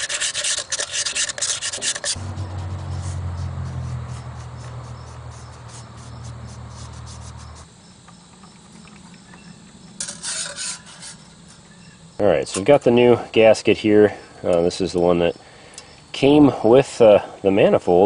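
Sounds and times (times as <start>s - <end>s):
steady low hum: 0.3s - 18.0s
crickets chirping: 1.9s - 18.0s
loud scraping rattles: 10.0s - 11.7s.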